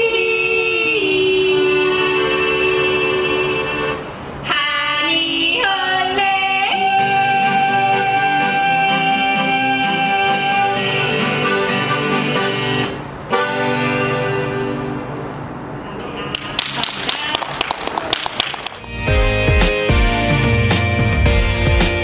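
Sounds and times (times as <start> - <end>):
women yodeling: 0.0 - 11.4
accordion: 1.6 - 4.1, 7.3 - 15.5, 18.8 - 22.0
acoustic guitar: 6.6 - 16.0, 18.8 - 22.0.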